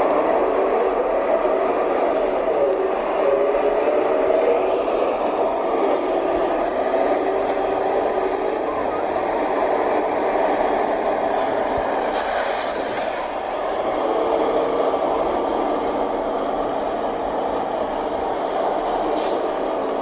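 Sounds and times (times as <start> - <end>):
bus diesel engine running: 10.4 - 20.0.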